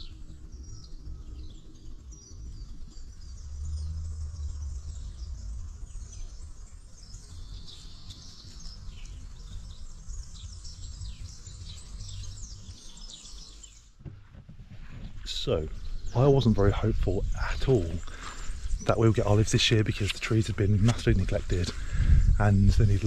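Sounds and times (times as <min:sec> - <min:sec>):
small birds chirping: 0:00.0 - 0:23.0
low rumble: 0:00.7 - 0:07.6.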